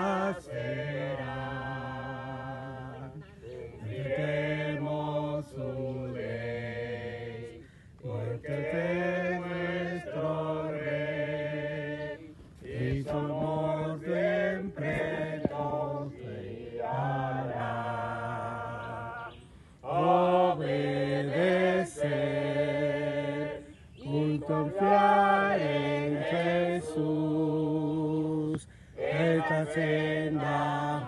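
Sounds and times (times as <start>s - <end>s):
group singing a hymn unaccompanied: 0.0s - 31.0s.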